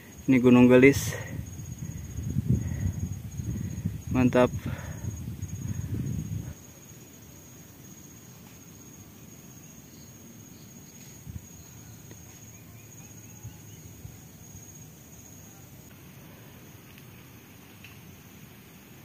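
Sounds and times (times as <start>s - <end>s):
high-pitched insect buzz: 0.1s - 16.0s
faint chirps: 9.6s - 16.0s.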